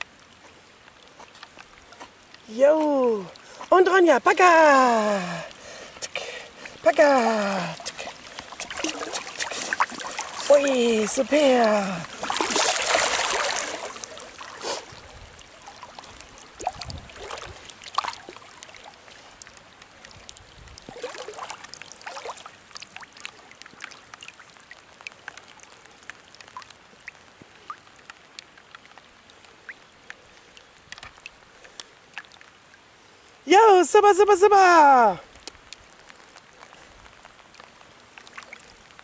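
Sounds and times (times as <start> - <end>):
rain falling on a lake: 0.0 - 39.0
water splashing loudly: 6.5 - 18.9, 20.8 - 23.4.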